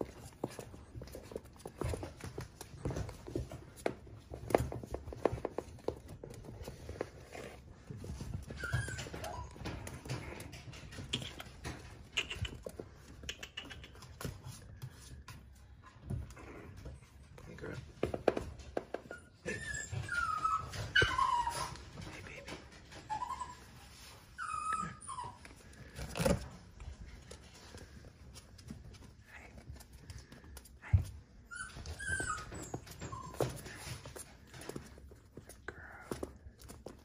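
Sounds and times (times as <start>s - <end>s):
puppy whimpering: 7.0s - 14.3s, 19.0s - 26.4s, 30.9s - 34.7s.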